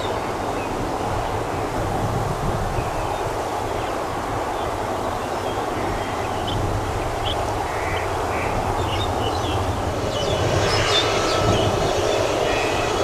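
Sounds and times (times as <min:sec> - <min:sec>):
jet engines whining and rushing: 0:00.0 - 0:13.0
low urban rumble: 0:03.4 - 0:13.0.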